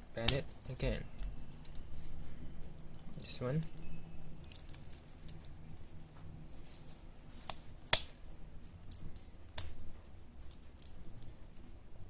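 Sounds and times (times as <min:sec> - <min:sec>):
plastic toy parts clicking: 0:04.4 - 0:05.6.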